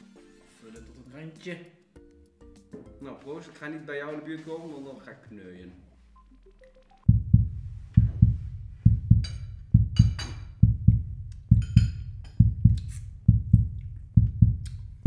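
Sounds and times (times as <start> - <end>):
heartbeat double thump: 7.1 - 15.0.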